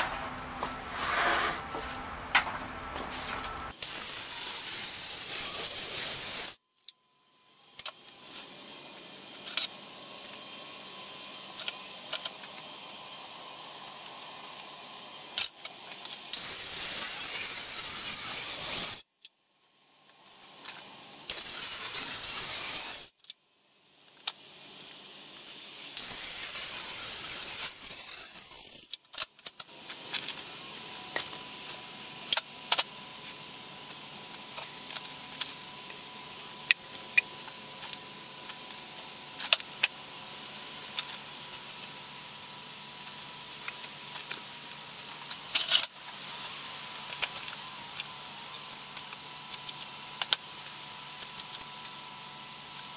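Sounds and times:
circular saw cutting wood: 0.0 - 6.6, 15.2 - 19.0, 21.2 - 23.2, 25.9 - 29.0.

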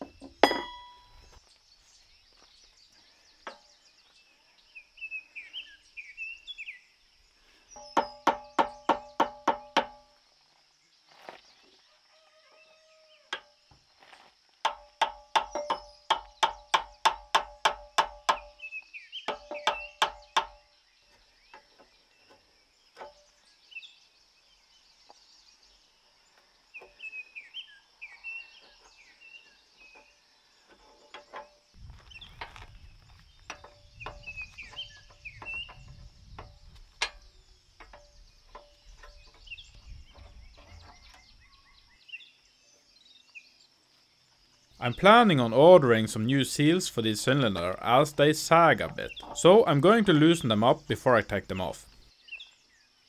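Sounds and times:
metal knocks on steel parts: 0.0 - 1.1, 7.8 - 10.1, 14.7 - 18.5, 19.3 - 20.6
small birds chirping: 0.0 - 53.0.

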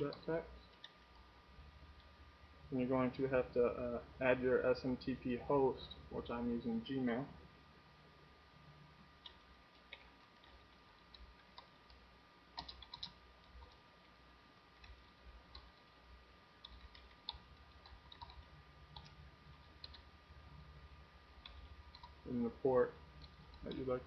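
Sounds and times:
keyboard typing clicks: 0.0 - 1.2, 9.2 - 12.0, 12.6 - 13.8, 14.8 - 15.9, 16.6 - 20.1, 21.4 - 22.2, 23.2 - 24.0
low steady hum: 0.0 - 24.0.

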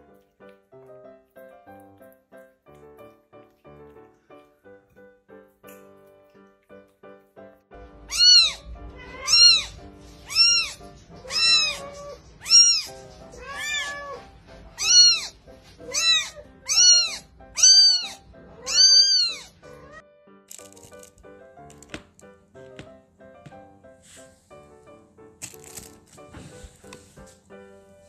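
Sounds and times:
background music: 0.0 - 28.0
kitten mewing: 8.1 - 20.0.

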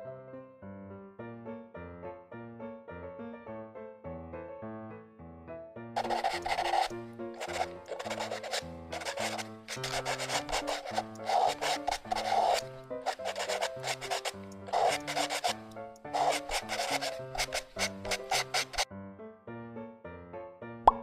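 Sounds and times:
background music: 0.0 - 21.0
marker scratching on paper: 6.0 - 18.9.

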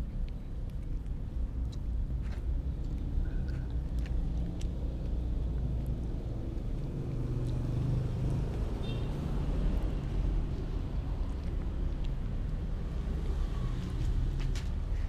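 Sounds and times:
kitten chewing clicks: 0.1 - 6.2, 11.2 - 12.9.

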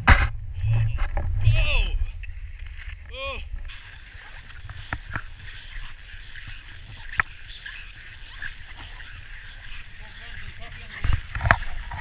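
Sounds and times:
wind on camera microphone: 0.0 - 12.0
camera handling rumble: 2.2 - 3.7.

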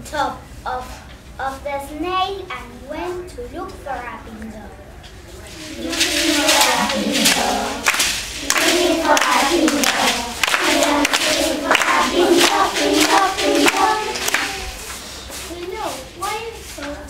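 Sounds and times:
children singing in unison: 5.7 - 14.9
hand clapping: 5.7 - 15.7.

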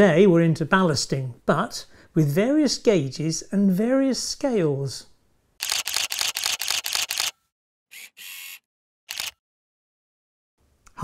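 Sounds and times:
camera shutter clicks: 5.6 - 7.4, 8.0 - 9.4.

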